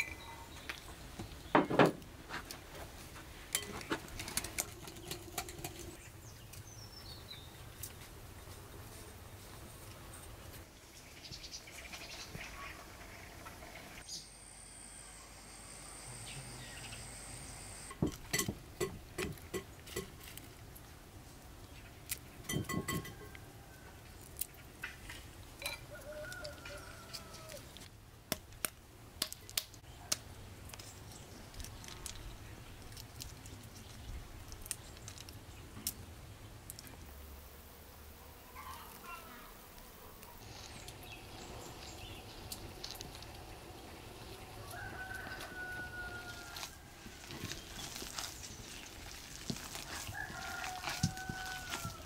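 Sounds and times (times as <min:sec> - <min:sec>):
birds chirping: 0:10.8 - 0:18.0, 0:40.2 - 0:46.1.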